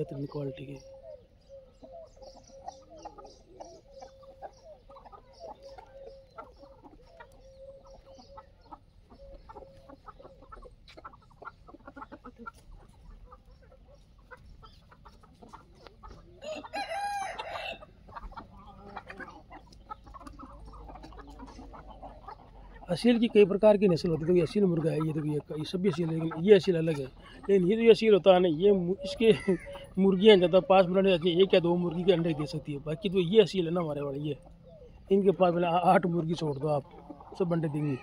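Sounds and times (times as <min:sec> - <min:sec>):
chickens clucking: 0:00.0 - 0:38.0
rooster crowing: 0:16.4 - 0:17.9.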